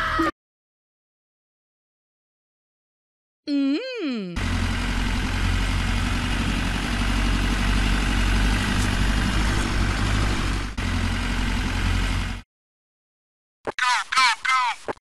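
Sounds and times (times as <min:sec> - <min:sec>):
tractor engine running: 0:04.4 - 0:12.4.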